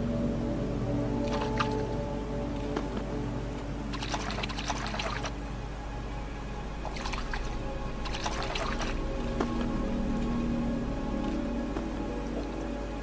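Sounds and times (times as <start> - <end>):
music: 0.0 - 13.0
splashing in shallow water: 3.9 - 5.3, 6.8 - 9.0.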